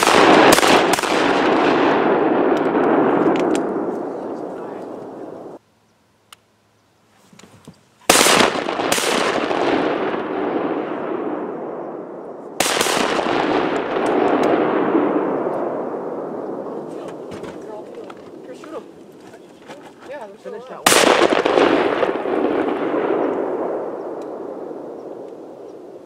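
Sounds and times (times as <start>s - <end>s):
shotgun blasts: 0.0s - 5.6s, 8.1s - 17.8s, 20.8s - 25.6s.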